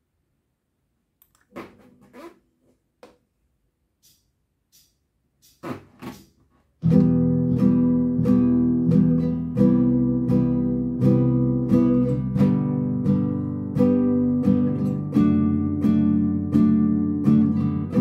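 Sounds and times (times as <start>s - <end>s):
classical guitar strummed: 6.8s - 18.0s.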